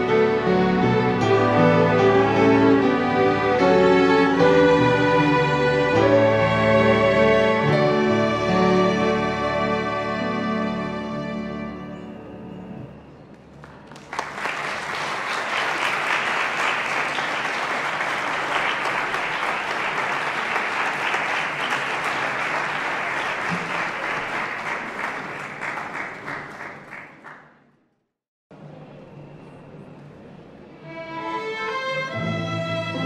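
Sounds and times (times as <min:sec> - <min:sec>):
audience applauding: 0:13.4 - 0:27.6.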